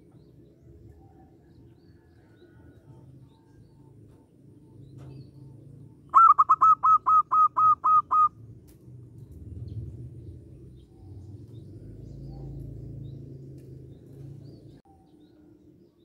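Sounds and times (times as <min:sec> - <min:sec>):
bird calling short notes: 0:06.1 - 0:08.3.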